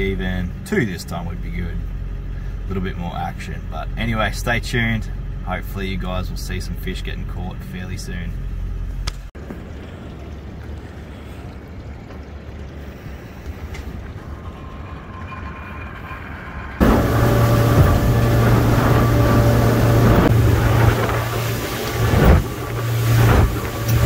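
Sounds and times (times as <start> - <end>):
outboard motors rumbling: 0.0 - 24.0
wind: 0.0 - 24.0
wake water rushing: 9.4 - 24.0
loud engine drone: 12.9 - 24.0.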